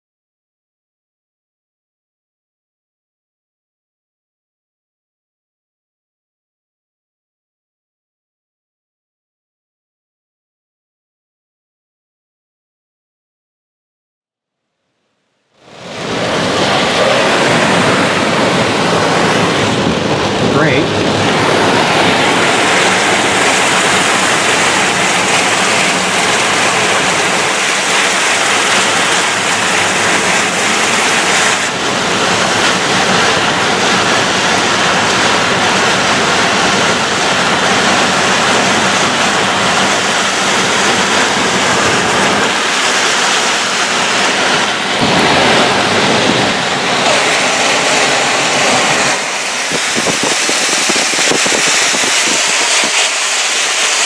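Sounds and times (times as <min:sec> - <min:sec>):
heavy rain pouring: 0:15.6 - 0:54.0
wind buffeting microphone: 0:15.7 - 0:53.7.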